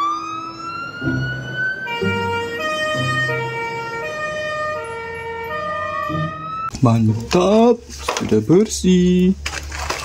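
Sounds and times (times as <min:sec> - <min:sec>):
fire engine siren wailing: 0:00.0 - 0:06.7
deep low horn blasts: 0:01.0 - 0:06.7.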